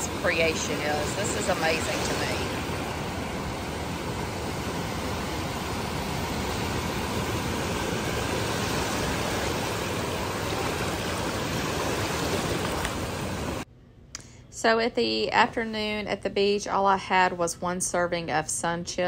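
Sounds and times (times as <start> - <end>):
small waves breaking on shore: 0.0 - 13.6.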